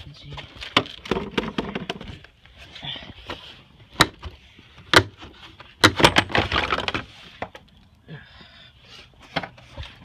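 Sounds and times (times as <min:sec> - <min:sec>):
sharp knocks and clatter: 0:05.8 - 0:07.0.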